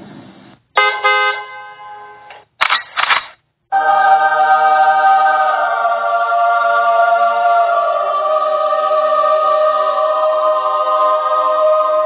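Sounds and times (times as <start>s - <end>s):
choir singing held chord: 3.7s - 12.0s.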